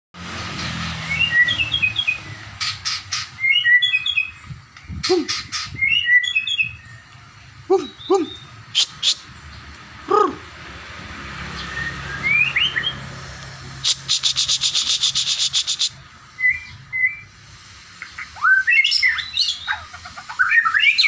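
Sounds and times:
songbird chirping: 1.0s - 10.5s, 11.4s - 17.4s, 18.0s - 21.0s
bird swooping calls: 1.2s - 6.8s, 13.8s - 17.2s.

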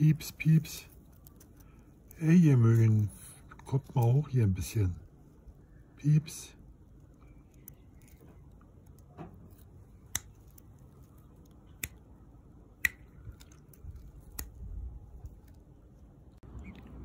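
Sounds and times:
faint low rumble: 0.0s - 17.0s
sharp single clicks: 12.8s - 13.6s.

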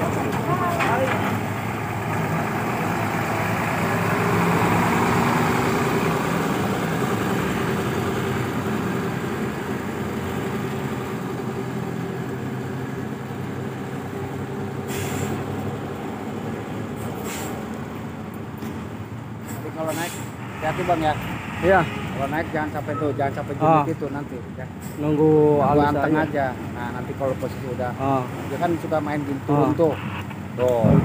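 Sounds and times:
truck diesel engine running: 0.0s - 19.5s
air hiss: 14.9s - 15.4s.

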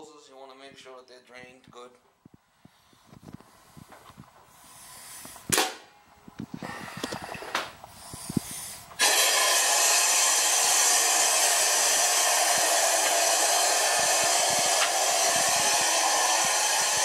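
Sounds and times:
compressed air rushing through pipes: 2.6s - 5.6s, 6.5s - 17.0s.

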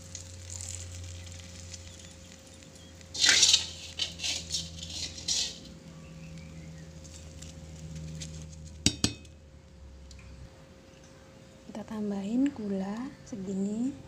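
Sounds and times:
metal utensil scraping frying pan: 3.1s - 5.8s.

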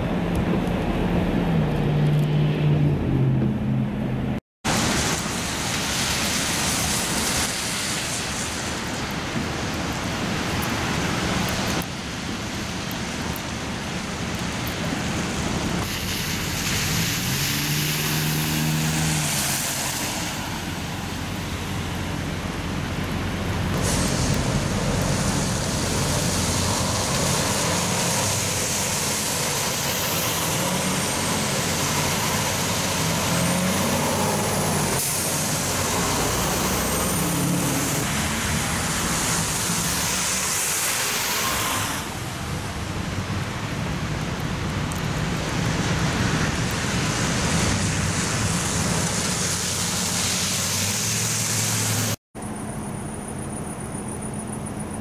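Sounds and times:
tyre noise on wet road: 0.0s - 55.0s
truck passing: 15.9s - 42.3s, 47.3s - 53.1s
vehicle engine passing: 16.7s - 20.8s.

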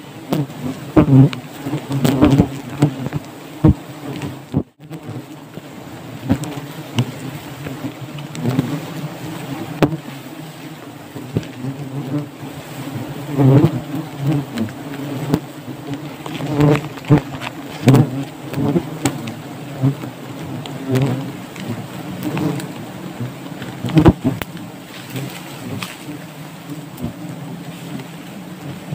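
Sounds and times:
bees buzzing: 0.0s - 28.9s.

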